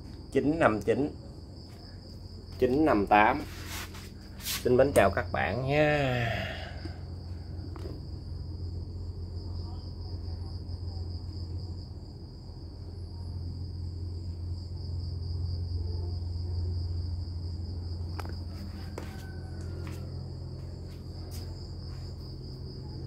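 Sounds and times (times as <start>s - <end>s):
high-pitched insect trill: 0.0s - 23.0s
steady low hum: 0.0s - 23.0s.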